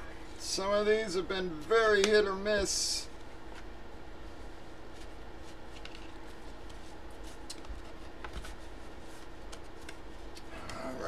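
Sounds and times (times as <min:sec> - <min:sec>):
paper envelope rustling: 0:04.8 - 0:10.4.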